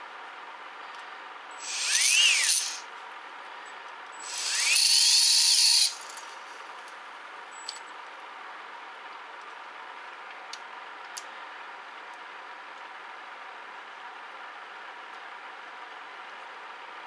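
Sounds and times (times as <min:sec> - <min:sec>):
small electric motor whirring: 0:01.6 - 0:02.9, 0:04.2 - 0:06.4.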